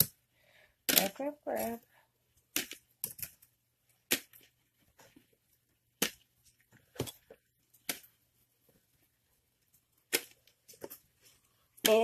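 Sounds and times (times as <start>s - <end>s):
sharp clicks and knocks of containers: 0.8s - 1.8s, 2.4s - 5.3s.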